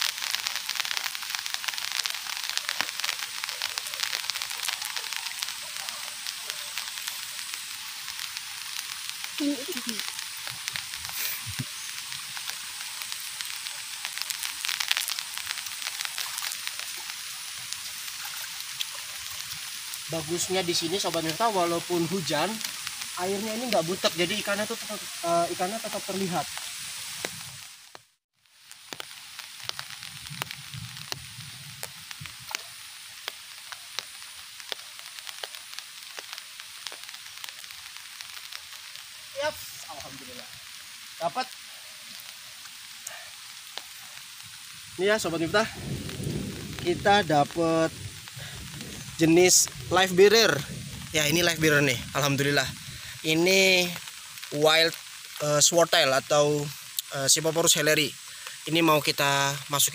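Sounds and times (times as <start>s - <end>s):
rain hiss with drop ticks: 0.0s - 59.9s
raindrop taps: 28.8s - 38.8s.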